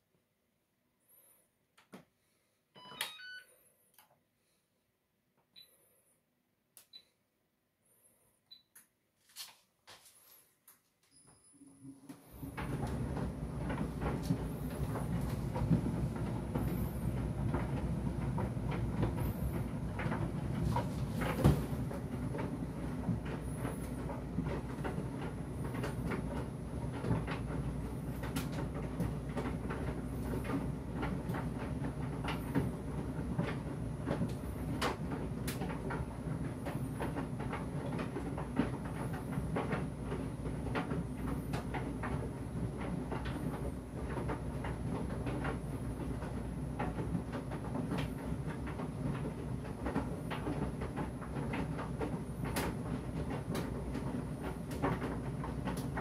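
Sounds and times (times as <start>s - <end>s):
tumble dryer humming: 12.0s - 56.0s.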